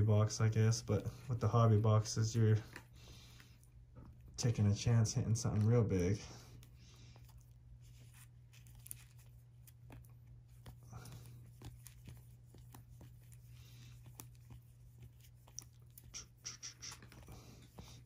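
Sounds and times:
trading cards clicking and rustling: 0:07.8 - 0:18.0.

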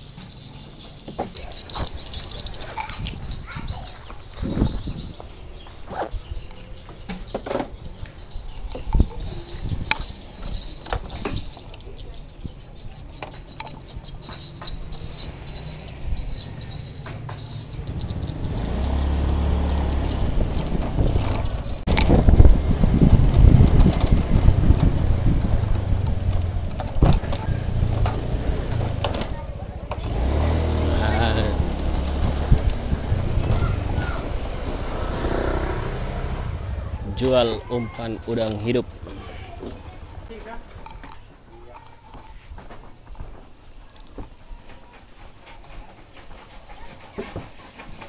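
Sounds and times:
wind noise on microphone: 0:01.7 - 0:06.6, 0:07.7 - 0:11.7, 0:17.8 - 0:29.4, 0:30.0 - 0:38.0
scooter engine running: 0:14.3 - 0:40.8.

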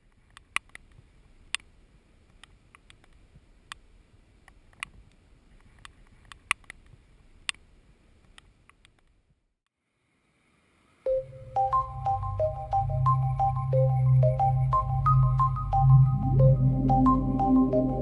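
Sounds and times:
low wind rumble: 0:11.1 - 0:18.0.

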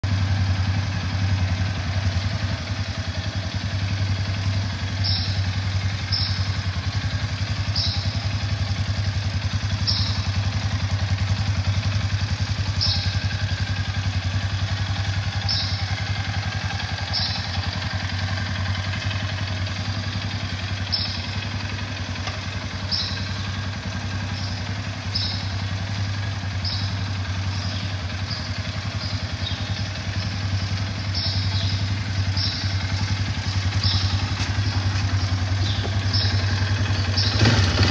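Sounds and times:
atv engine idling: 0:00.0 - 0:37.9.

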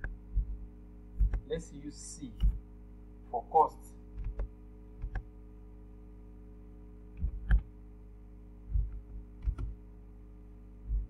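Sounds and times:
electrical hum: 0:00.0 - 0:11.0
keyboard key presses: 0:01.2 - 0:01.5, 0:04.2 - 0:05.3, 0:07.2 - 0:07.7, 0:08.7 - 0:09.8.

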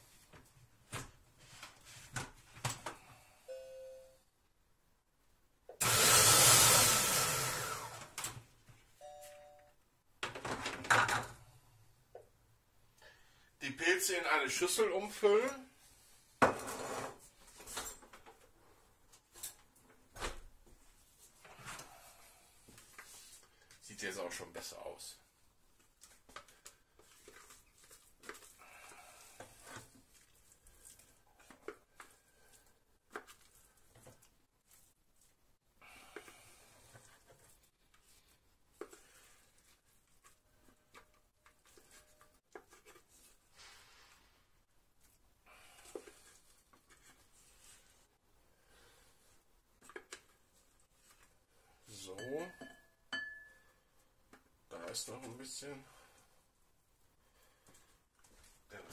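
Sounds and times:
two-tone electronic beep: 0:03.5 - 0:04.2
food processor motor whirring: 0:05.8 - 0:08.2.

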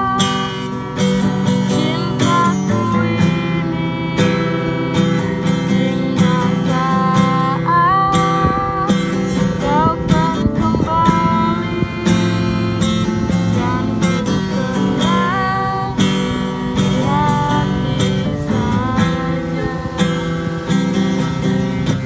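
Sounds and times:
girl singing: 0:00.0 - 0:21.2
acoustic guitar strumming: 0:00.0 - 0:22.0.

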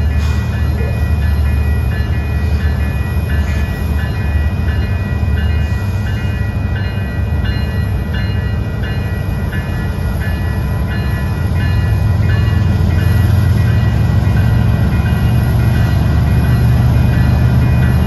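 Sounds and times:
crossing warning bell ringing: 0:00.0 - 0:18.0
freight train rumble: 0:00.0 - 0:18.0.

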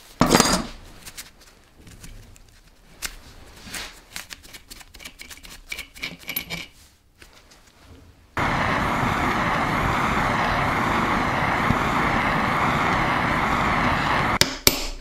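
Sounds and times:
gas torch roaring hiss: 0:08.4 - 0:14.4.

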